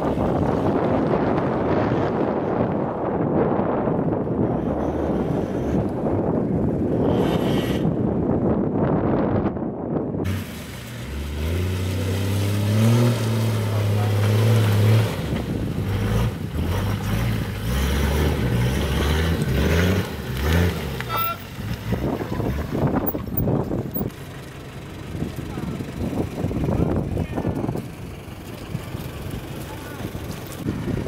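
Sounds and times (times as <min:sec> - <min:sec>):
off-road vehicle engine revving: 0:04.4 - 0:08.4, 0:10.2 - 0:31.0.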